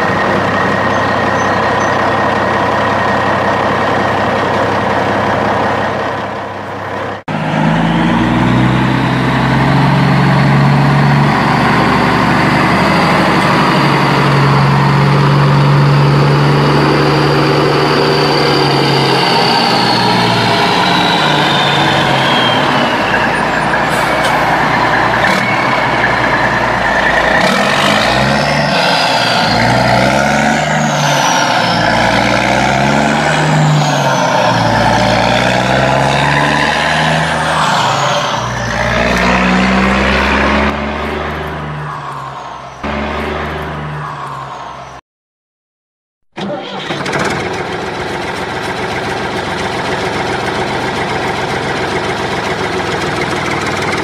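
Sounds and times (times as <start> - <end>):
heavy truck engine revving: 0.0 - 45.0, 46.3 - 54.0.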